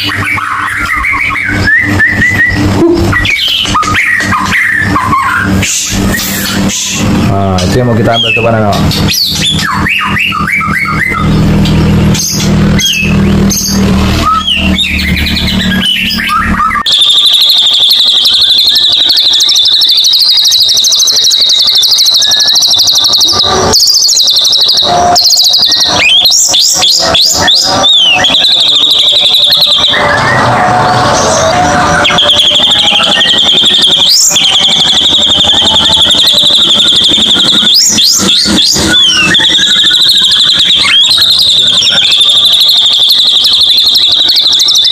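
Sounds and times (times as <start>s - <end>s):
bird whistles and calls: 0.0s - 7.0s, 8.0s - 11.4s, 12.1s - 44.9s
low hum: 0.0s - 19.8s
dense bird chorus: 0.0s - 44.9s
steady high trill: 0.0s - 44.9s.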